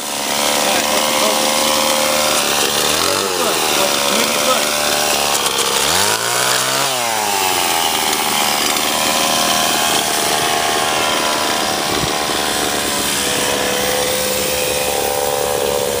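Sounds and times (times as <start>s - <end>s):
chainsaw cutting log: 0.0s - 16.0s.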